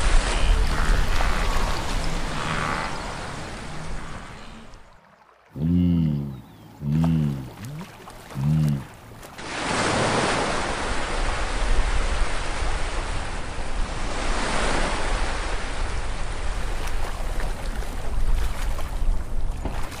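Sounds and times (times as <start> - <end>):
rushing river water: 0.0 - 5.6, 6.4 - 13.6, 14.3 - 20.0.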